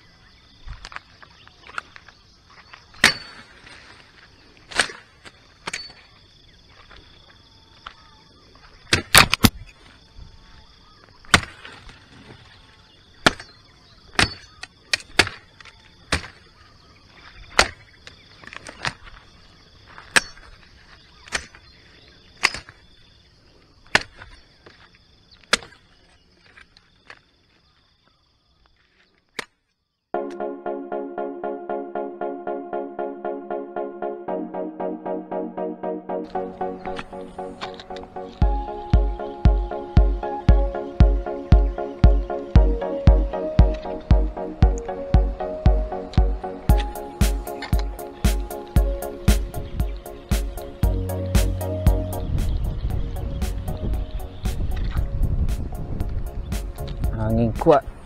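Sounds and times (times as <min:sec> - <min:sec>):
machete chopping branches: 0:03.0 - 0:03.6, 0:04.7 - 0:05.1, 0:11.3 - 0:11.9, 0:13.2 - 0:15.5, 0:16.1 - 0:16.4, 0:23.9 - 0:24.3.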